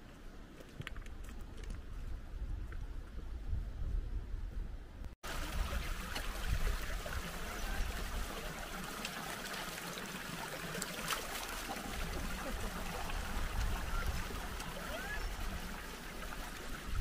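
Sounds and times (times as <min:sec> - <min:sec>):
wind rumble on microphone: 0:00.7 - 0:08.3, 0:11.8 - 0:17.0
stream running over stones: 0:05.2 - 0:17.0.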